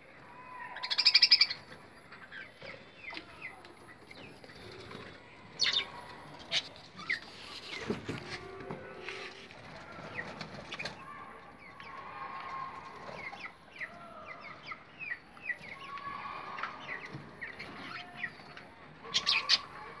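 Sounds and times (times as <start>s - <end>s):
budgerigars chirping and warbling: 0.8s - 4.9s, 5.6s - 7.9s, 16.6s - 20.0s.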